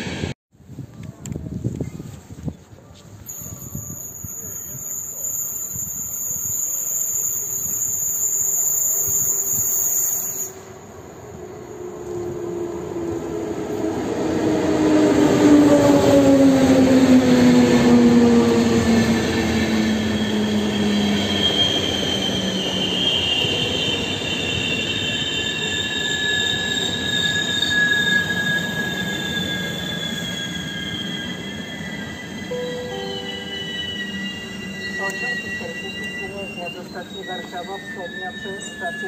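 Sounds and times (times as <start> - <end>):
electric locomotive whine: 0.0 - 39.0
high-pitched wheel squeal: 3.2 - 10.6, 18.0 - 39.0.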